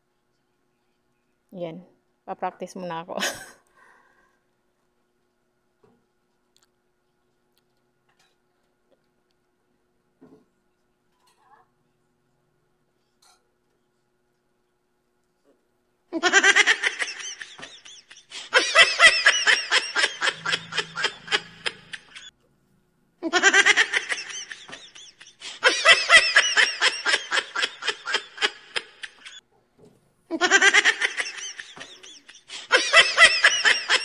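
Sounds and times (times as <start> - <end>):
high-pitched laughter: 16.2 - 22.3, 23.2 - 29.4, 30.3 - 34.0.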